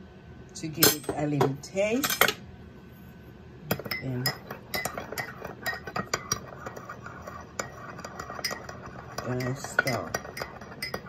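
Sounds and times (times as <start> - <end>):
teaspoon clinking in teacup: 7.6 - 11.0.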